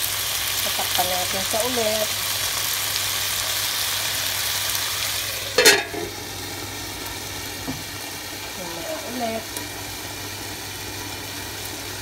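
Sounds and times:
food sizzling in a pan: 0:00.0 - 0:12.0
metal lid clanking on pan: 0:05.4 - 0:06.2.

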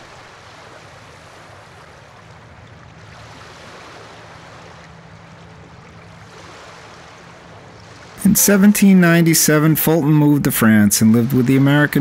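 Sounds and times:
rushing water: 0:00.0 - 0:12.0.

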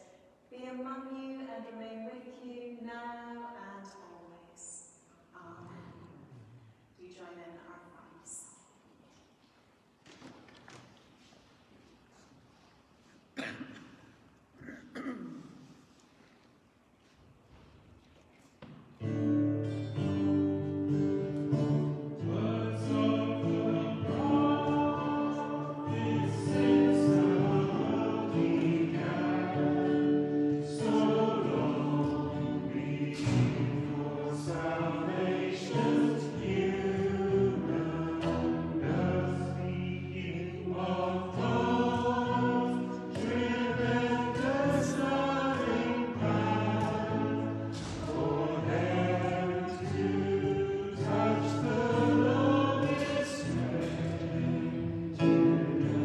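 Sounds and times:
congregation singing a hymn: 0:19.0 - 0:56.0
guitar accompaniment: 0:19.0 - 0:56.0.

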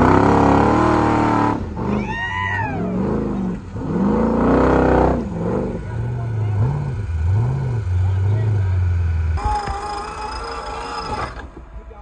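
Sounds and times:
truck engine revving hard: 0:00.0 - 0:11.6.

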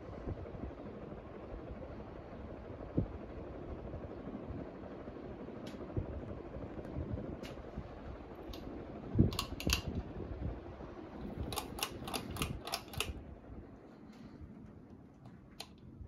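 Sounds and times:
ceiling fan whoosh: 0:00.0 - 0:16.0
sharp clicks: 0:09.3 - 0:10.0, 0:11.4 - 0:13.2.

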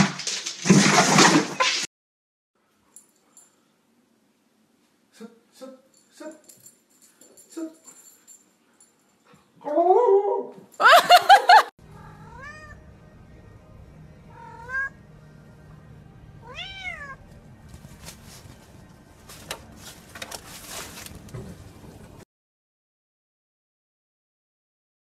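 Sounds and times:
cat meowing: 0:12.0 - 0:12.8, 0:14.3 - 0:15.0, 0:16.4 - 0:17.2.

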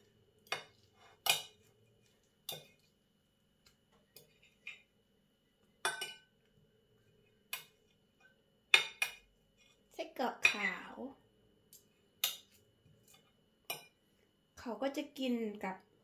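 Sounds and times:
cutlery clinking on a plate: 0:02.5 - 0:02.8, 0:05.8 - 0:06.3.

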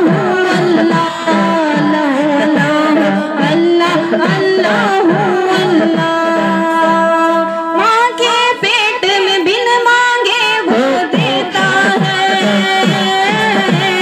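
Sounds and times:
low repeated chant: 0:00.0 - 0:07.8, 0:10.6 - 0:14.0
person singing devotional song: 0:00.0 - 0:14.0.

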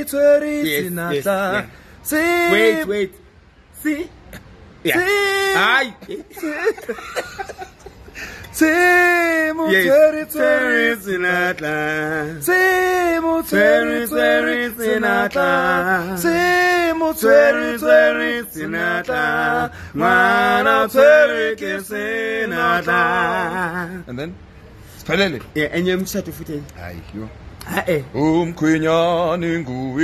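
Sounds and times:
two men singing unaccompanied: 0:00.0 - 0:24.4, 0:27.6 - 0:30.0.

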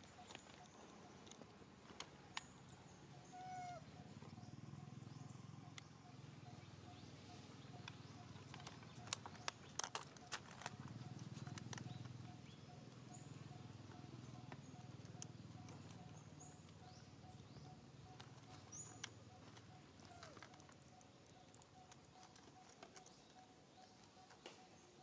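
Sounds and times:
cluster of sharp clicks: 0:07.8 - 0:12.2.

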